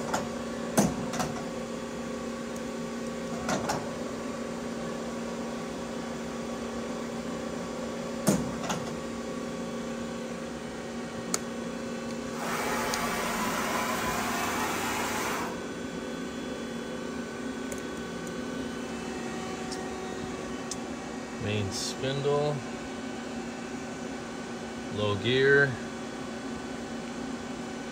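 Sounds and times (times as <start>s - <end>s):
lathe electrical hum: 0.0s - 27.9s
hiss: 12.4s - 15.5s.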